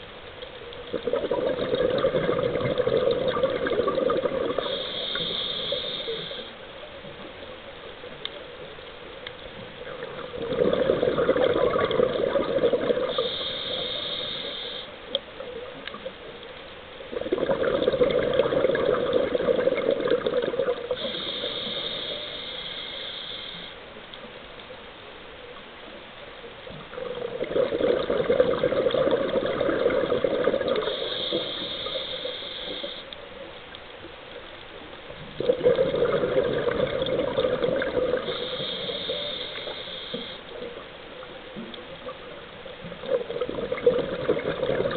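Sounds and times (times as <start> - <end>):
rush of bubbles: 0.9 - 6.3, 9.8 - 14.5, 17.1 - 21.5, 26.9 - 32.1, 35.2 - 39.8, 42.9 - 44.9
regulator breathing hiss: 4.5 - 6.7, 13.0 - 15.2, 20.9 - 23.9, 30.8 - 33.2, 38.1 - 40.8.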